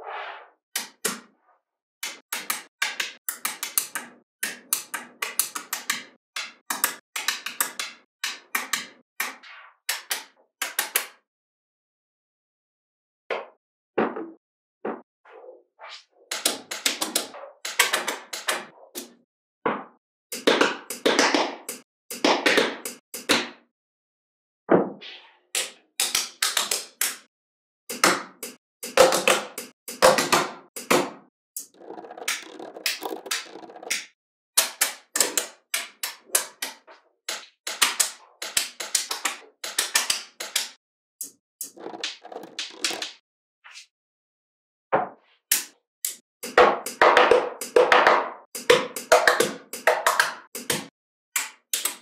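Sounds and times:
magnetic balls clicking: 0:31.6 - 0:34.1.

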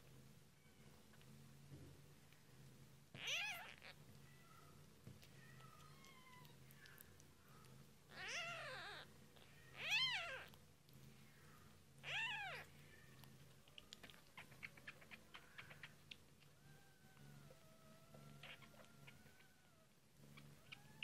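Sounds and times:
faint small clicks: 0:01.1 - 0:01.3, 0:05.0 - 0:07.8, 0:13.1 - 0:16.6
kitten mewing: 0:03.1 - 0:04.0, 0:08.1 - 0:10.6.

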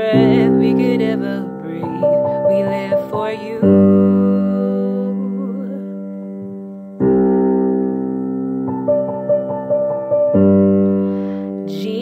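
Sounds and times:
person singing with vibrato: 0:00.0 - 0:06.4, 0:11.4 - 0:12.0
slow piano chords: 0:00.0 - 0:12.0.

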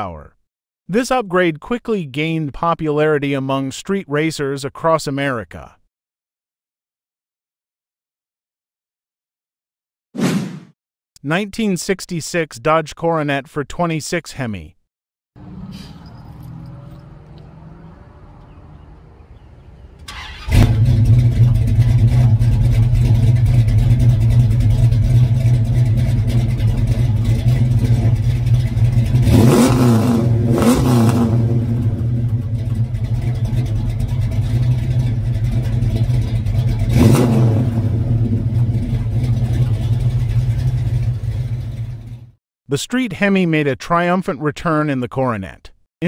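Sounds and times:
car engine idling: 0:15.4 - 0:42.3
engine revving: 0:15.4 - 0:42.3.

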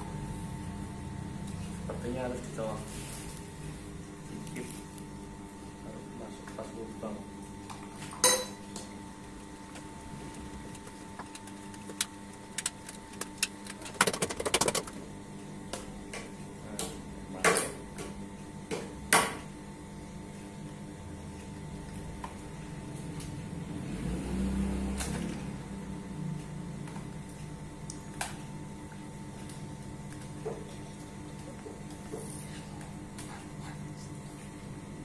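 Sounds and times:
plastic parts clicking and knocking: 0:11.2 - 0:15.0.

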